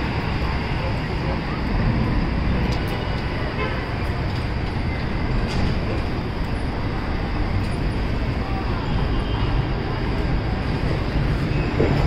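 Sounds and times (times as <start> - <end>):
bus idling: 0.0 - 12.0
street traffic noise: 0.0 - 12.0.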